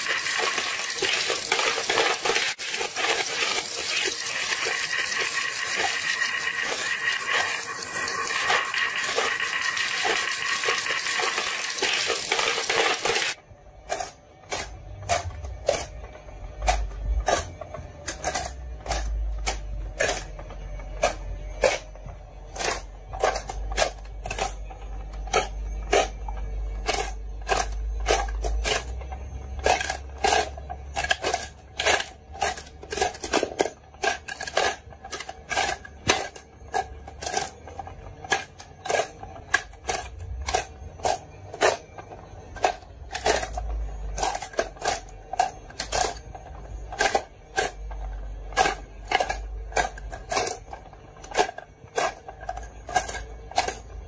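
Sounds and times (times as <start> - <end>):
marbles rolling rush: 0.0 - 13.4
marbles clicking and clacking: 0.0 - 16.0, 22.5 - 54.0.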